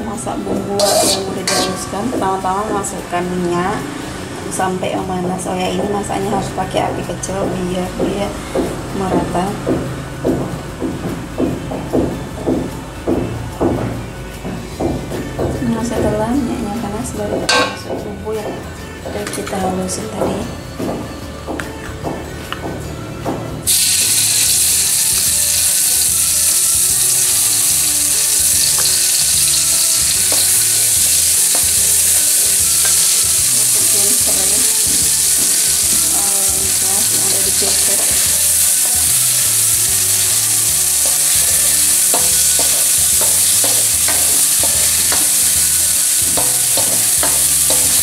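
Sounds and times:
spatula scraping and tapping wok: 0.5s - 3.2s, 17.3s - 18.1s, 23.7s - 48.0s
spice paste sizzling in oil: 0.8s - 2.3s, 23.7s - 48.0s.

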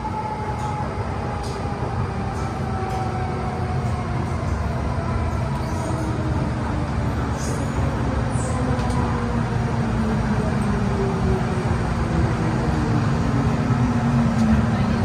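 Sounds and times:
train wheels rumbling in tunnel: 0.0s - 15.0s.

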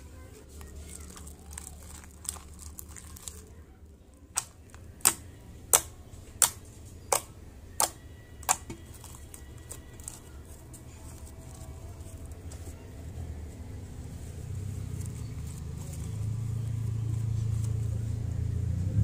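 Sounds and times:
fingertips poking slime popping clicks: 4.4s - 8.7s.

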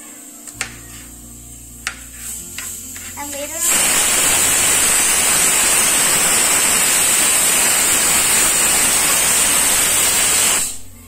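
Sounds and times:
static hiss: 0.0s - 11.0s.

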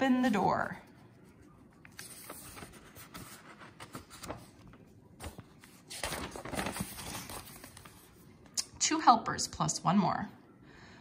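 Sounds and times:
book page turning: 1.1s - 8.6s.

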